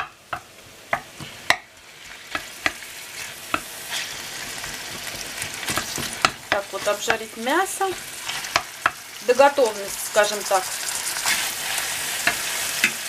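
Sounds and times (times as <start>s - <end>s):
meat sizzling in a frying pan: 0.0s - 13.0s
wooden spatula scraping a pan: 2.0s - 9.0s, 9.8s - 13.0s.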